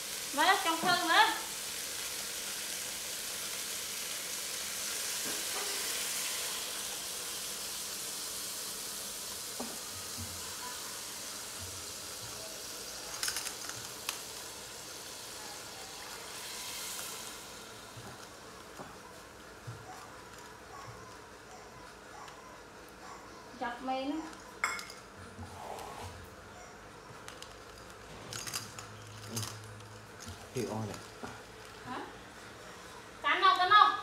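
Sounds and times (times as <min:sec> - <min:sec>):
meat sizzling in a pot: 0:00.0 - 0:25.4.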